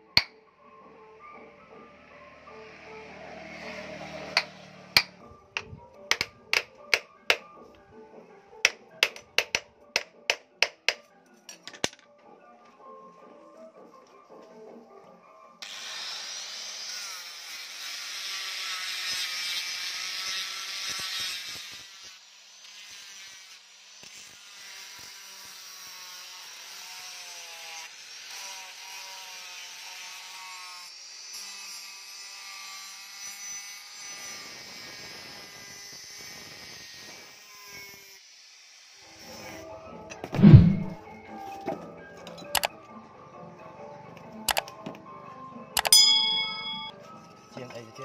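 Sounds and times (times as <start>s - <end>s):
angle grinder sanding metal: 15.7s - 30.8s.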